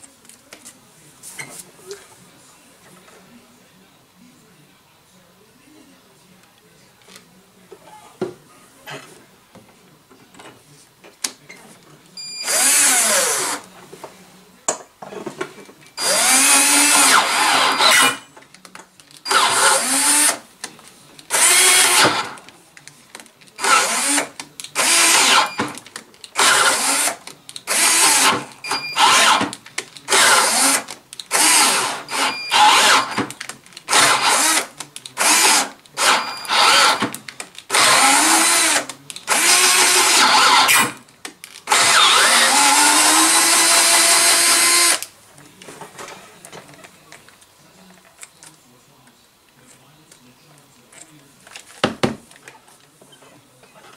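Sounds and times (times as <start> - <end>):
cordless drill tapping threads: 12.4 - 13.6, 16.0 - 18.2, 19.3 - 20.4, 21.3 - 22.3, 23.6 - 25.8, 26.4 - 33.3, 33.9 - 37.1, 37.7 - 41.0, 41.7 - 45.1.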